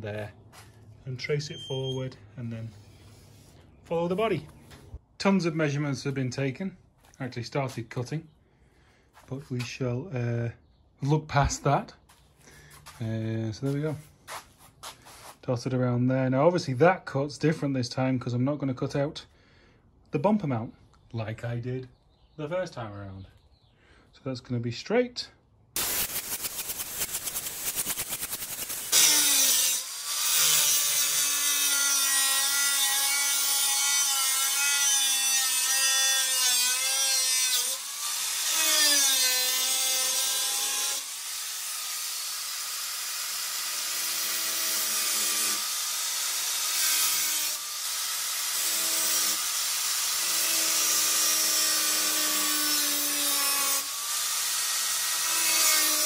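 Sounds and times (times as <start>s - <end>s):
fast rattle: 25.8s - 28.9s
angle grinder cutting metal: 25.8s - 56.0s.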